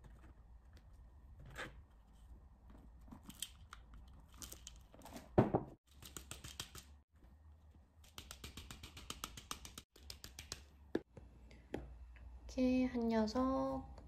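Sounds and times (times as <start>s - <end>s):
thump: 5.4s - 5.8s.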